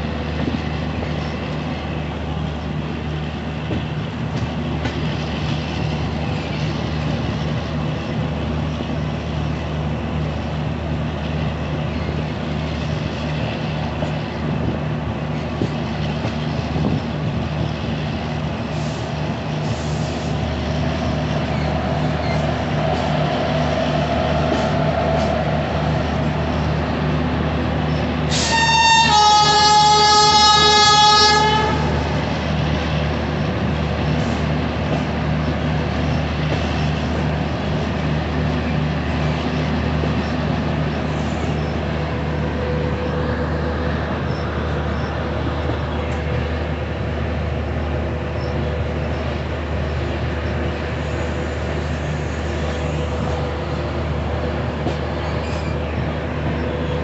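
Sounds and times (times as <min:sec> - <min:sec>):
freight train rumbling past: 0:00.0 - 0:57.0
train horn blast: 0:28.3 - 0:32.3.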